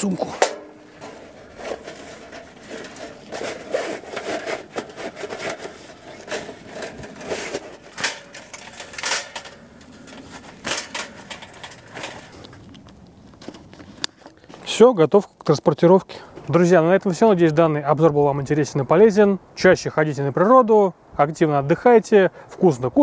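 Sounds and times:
metal scraping against metal and cloth: 0.0s - 12.7s.

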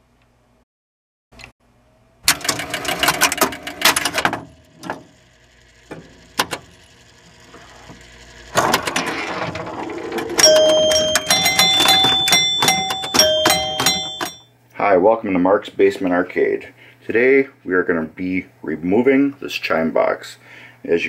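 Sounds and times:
pinball machine relays clicking: 2.3s - 7.1s, 8.5s - 14.4s.

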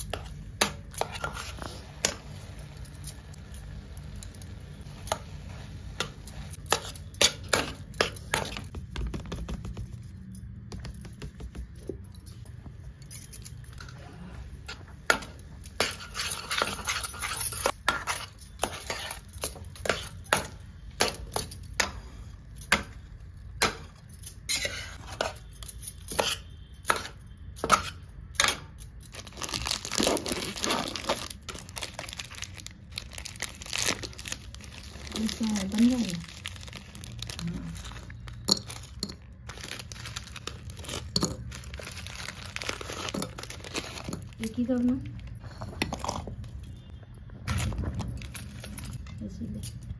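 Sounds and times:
metal spatula scraping a pan: 24.5s - 25.4s
plastic wrapper crinkling: 29.1s - 45.4s.

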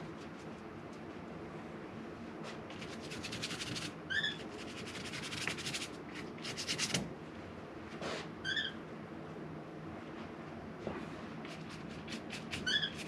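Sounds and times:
paintbrush scratching strokes: 11.5s - 13.0s.

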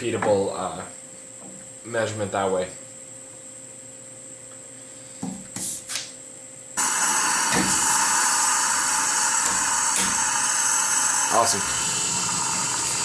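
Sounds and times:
vacuum pump running: 6.8s - 13.0s.

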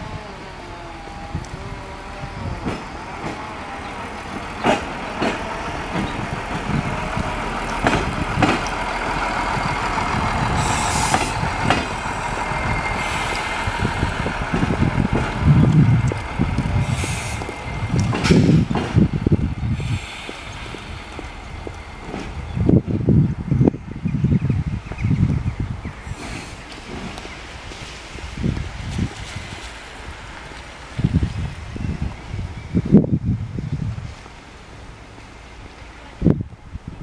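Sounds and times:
diesel engine running: 0.0s - 23.6s
wheels clicking over rail joints: 2.6s - 23.2s, 26.1s - 31.2s
air hisses: 10.6s - 14.1s, 16.8s - 18.8s, 19.7s - 21.2s, 26.0s - 26.8s.

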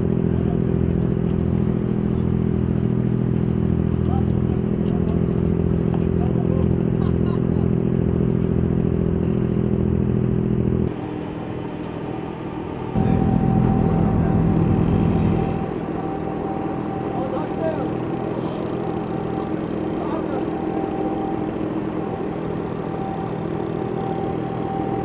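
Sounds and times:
ferry engine droning: 0.0s - 25.0s
thin steady whine: 10.8s - 25.0s.

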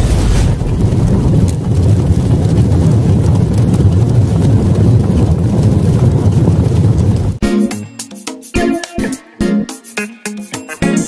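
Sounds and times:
deep rumble: 0.0s - 7.4s.

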